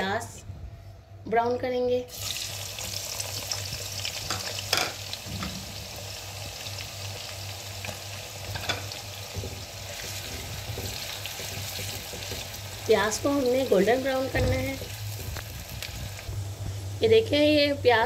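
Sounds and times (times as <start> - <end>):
steady low hum: 0.0 - 18.0
onions sizzling in hot oil: 2.1 - 17.4
spatula scraping and knocking: 8.6 - 12.6.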